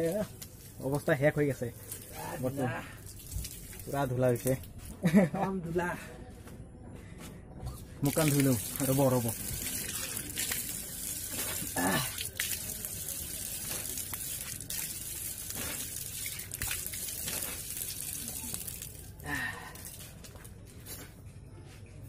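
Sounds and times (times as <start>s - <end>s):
water splashing on face: 0.0s - 4.7s, 8.0s - 20.2s
water running from tap: 8.0s - 19.2s.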